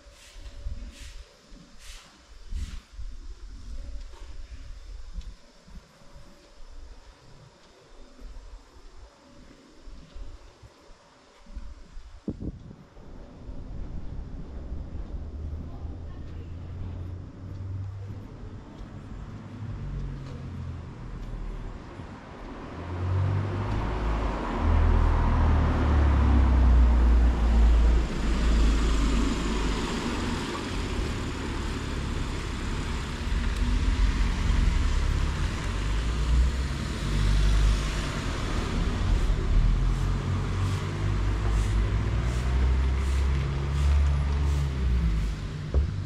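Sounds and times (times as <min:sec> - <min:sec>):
tyres hissing on road: 0:00.0 - 0:07.4, 0:18.9 - 0:46.0
large vehicle engine running: 0:13.7 - 0:46.0.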